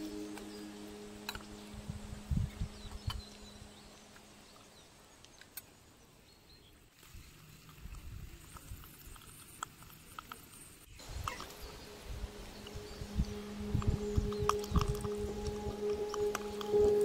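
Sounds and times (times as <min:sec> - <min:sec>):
low rumble: 0:00.0 - 0:04.6, 0:11.5 - 0:17.0.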